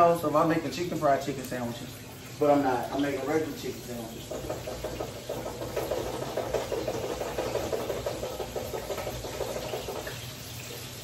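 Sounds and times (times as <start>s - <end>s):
chicken frying in hot oil: 0.0s - 11.0s.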